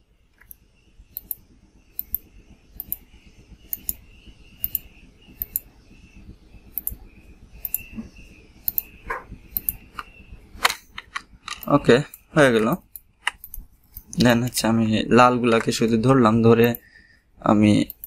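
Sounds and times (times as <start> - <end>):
computer mouse clicking: 0.4 - 1.4, 2.0 - 3.0, 3.7 - 4.0, 4.6 - 5.6, 6.8 - 7.0, 7.6 - 7.9, 8.6 - 14.2, 16.6 - 16.8.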